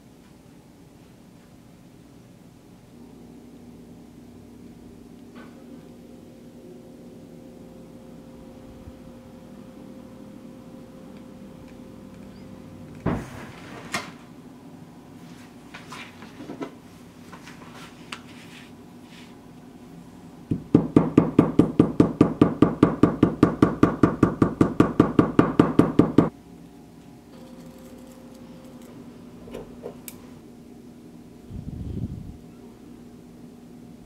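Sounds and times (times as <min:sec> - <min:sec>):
hammer knocking on leather: 0:20.5 - 0:26.3.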